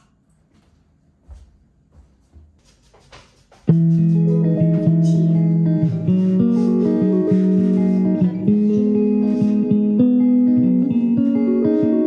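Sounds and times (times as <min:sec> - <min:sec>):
plucked guitar music: 0:03.7 - 0:12.0.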